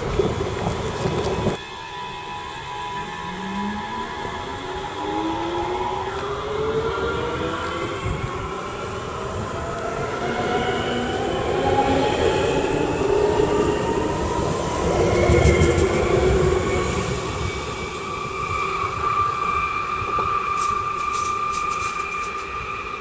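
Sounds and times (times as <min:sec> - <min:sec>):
wheels rumbling on rails: 0:00.0 - 0:23.0
electric traction motors whining: 0:00.1 - 0:11.5.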